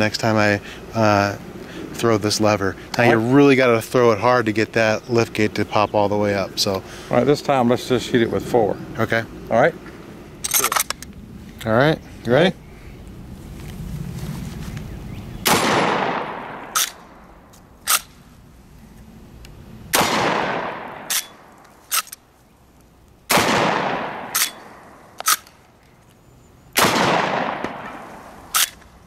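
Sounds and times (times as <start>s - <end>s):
shotgun blasts with echo: 15.4s - 17.0s, 19.9s - 21.3s, 23.3s - 24.9s, 26.8s - 28.2s
shotgun lever clacking: 28.6s - 28.9s.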